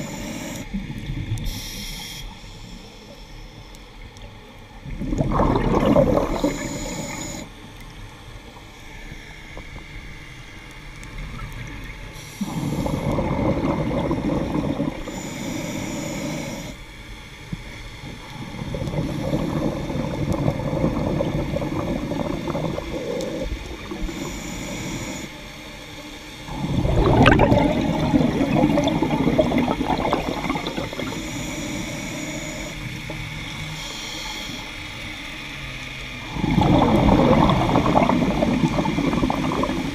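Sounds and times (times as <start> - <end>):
regulator inhale hiss: 0.0 - 0.8, 1.4 - 3.8, 6.3 - 7.7, 12.1 - 27.0, 30.3 - 35.4
exhaled bubbles underwater: 4.8 - 7.5, 11.1 - 15.4, 17.5 - 25.2, 26.5 - 33.9, 36.2 - 39.9.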